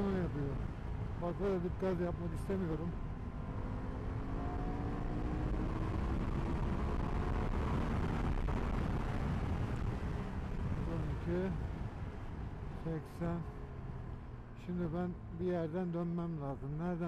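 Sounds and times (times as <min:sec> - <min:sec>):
rush of riding wind: 0:00.0 - 0:15.5
motorcycle engine accelerating: 0:03.2 - 0:10.9.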